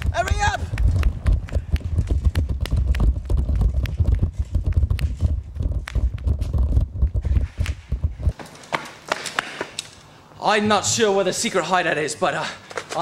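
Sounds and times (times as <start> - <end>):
wind rumble on microphone: 0.0 - 8.4
knocks and rattles: 0.0 - 9.7.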